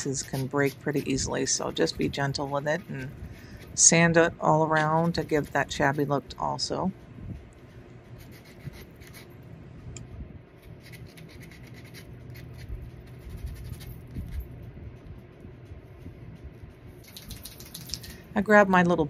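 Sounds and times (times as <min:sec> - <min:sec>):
hand sanding tool scratching: 0:00.0 - 0:06.4, 0:10.6 - 0:14.4.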